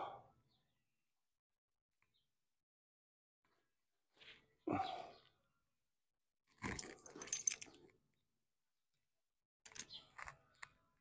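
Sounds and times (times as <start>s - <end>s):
halter metal clinking and jingling: 6.6s - 7.9s, 9.7s - 9.9s.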